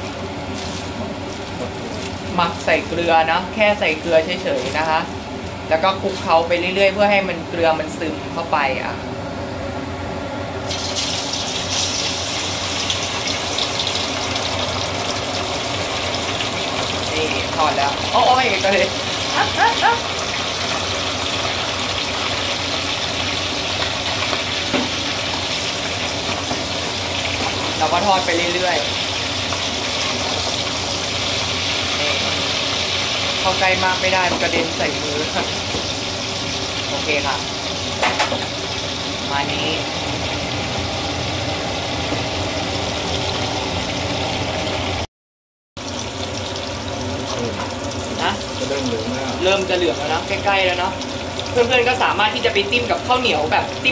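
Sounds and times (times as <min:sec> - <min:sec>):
oil sizzling and bubbling: 0:00.0 - 0:45.1, 0:45.8 - 0:53.9.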